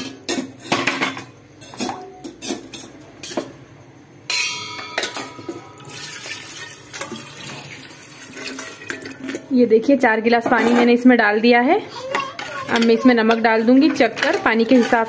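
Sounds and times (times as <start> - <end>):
water pouring into pot: 5.8 - 9.6.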